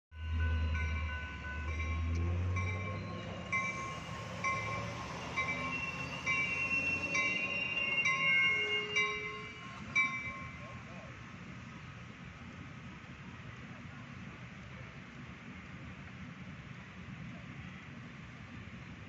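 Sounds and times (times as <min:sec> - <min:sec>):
railroad crossing bell dinging: 0:00.1 - 0:11.2
train rolling by: 0:00.1 - 0:19.0.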